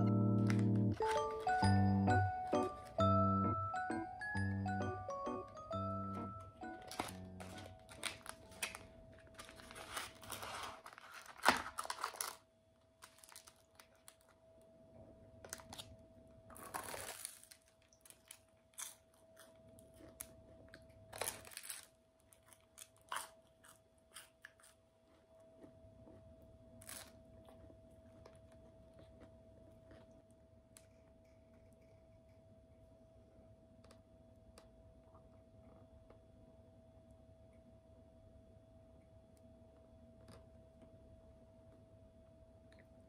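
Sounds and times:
cardboard and paper tearing: 9.4 - 12.4.

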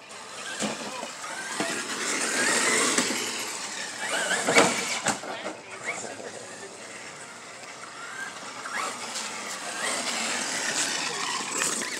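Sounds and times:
electric motor whining: 0.1 - 5.2.

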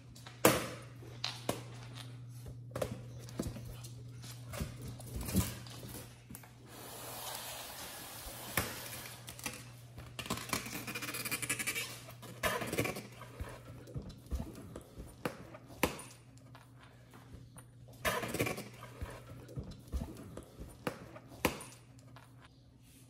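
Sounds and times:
scratchy rubbing of balloon: 10.4 - 13.6.

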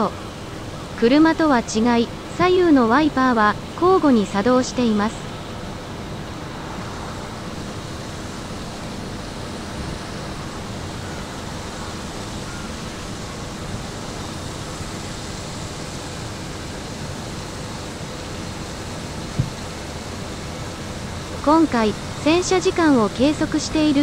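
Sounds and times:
train washer spraying water: 7.5 - 24.0.

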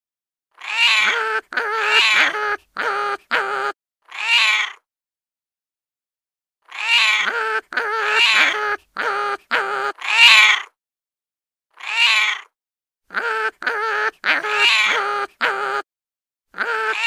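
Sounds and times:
animal making meow-like cries: 0.6 - 4.8, 6.6 - 10.7, 11.7 - 12.5, 13.1 - 15.8, 16.5 - 17.0.

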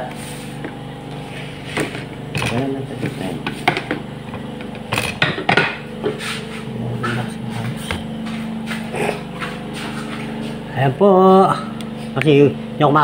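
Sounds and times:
steady low hum: 0.0 - 13.0
dishes clinking on table: 2.4 - 4.0, 4.9 - 5.8.

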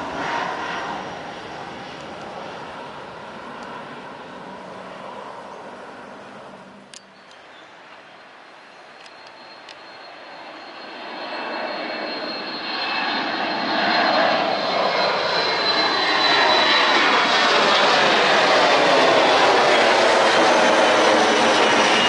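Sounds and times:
high fan whine: 0.0 - 10.7
jet engine roar: 0.0 - 22.0.

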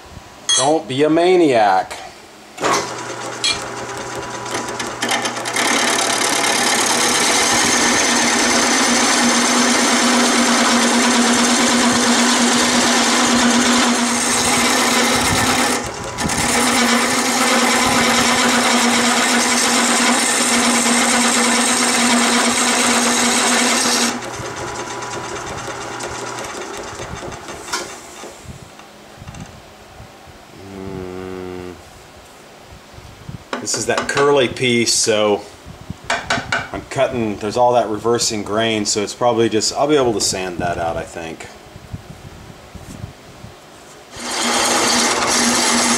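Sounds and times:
tool cutting spinning wood: 2.6 - 28.4, 44.1 - 45.9
lathe motor humming: 2.8 - 28.3, 44.1 - 45.9.

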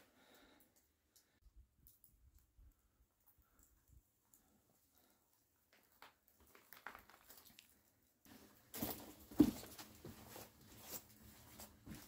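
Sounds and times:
boot scuffs: 8.3 - 12.0.

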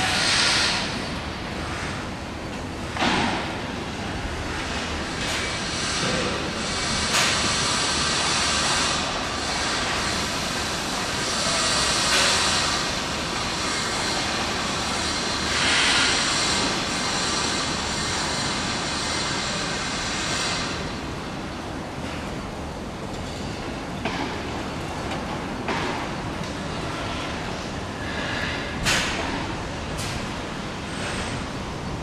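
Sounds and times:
train rushing noise: 0.0 - 1.2.

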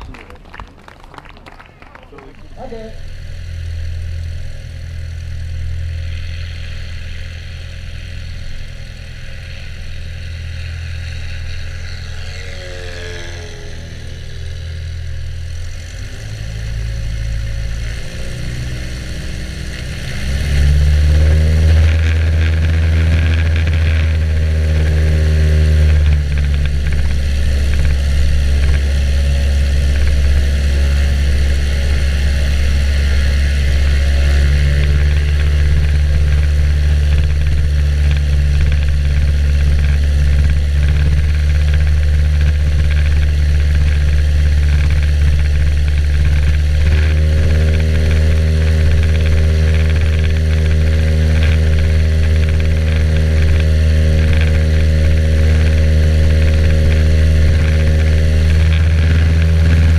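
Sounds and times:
propeller plane engine running: 0.0 - 59.9.

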